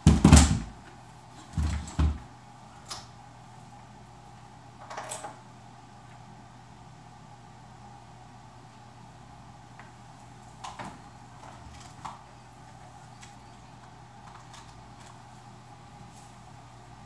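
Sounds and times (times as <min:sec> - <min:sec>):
steady low hum: 0:00.0 - 0:17.0
cables and plugs clicking: 0:13.2 - 0:15.2.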